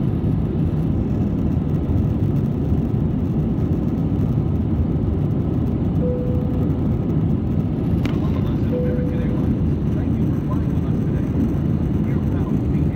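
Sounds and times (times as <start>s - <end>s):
airliner engines rumbling: 0.0s - 12.9s
short steady tone: 6.0s - 6.8s, 8.7s - 9.5s.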